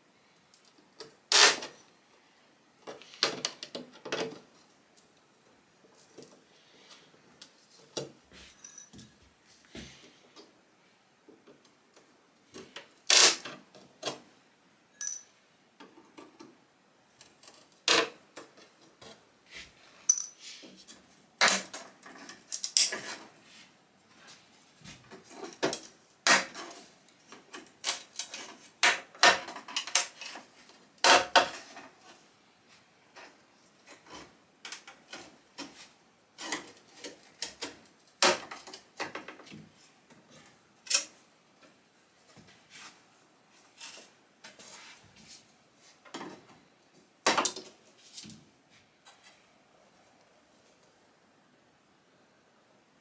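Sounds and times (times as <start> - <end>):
fasteners clinking into ceramic bowl: 15.0 - 15.3, 20.1 - 20.4.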